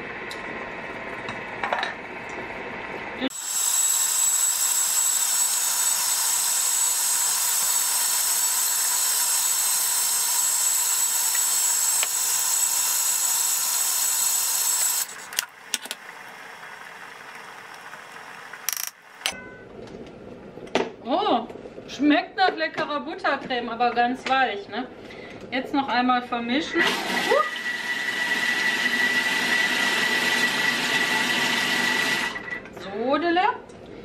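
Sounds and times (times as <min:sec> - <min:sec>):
food processor motor whine: 0:03.3 - 0:15.4, 0:26.8 - 0:32.6.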